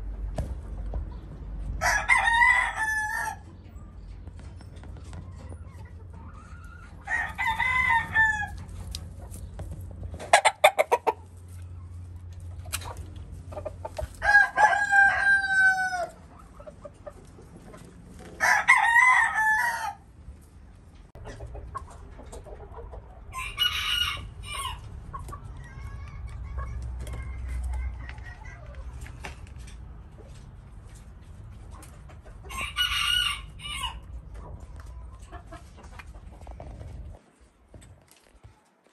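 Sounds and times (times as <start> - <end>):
roosters crowing: 1.7 - 3.6, 6.2 - 9.0, 13.6 - 16.5, 18.2 - 20.2, 23.2 - 27.9, 32.4 - 34.2.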